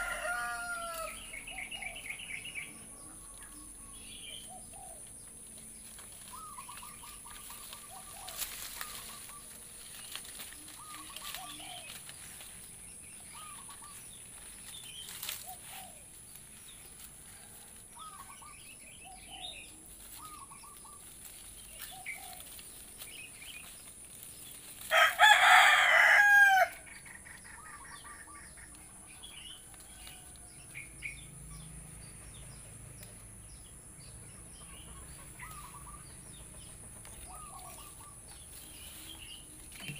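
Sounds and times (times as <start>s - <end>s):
rooster crowing: 0.0s - 1.4s, 24.9s - 26.8s.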